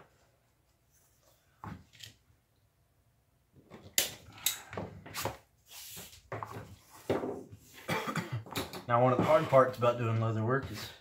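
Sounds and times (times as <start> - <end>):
knocks and clatter on workbench: 6.3 - 7.6, 8.4 - 9.6.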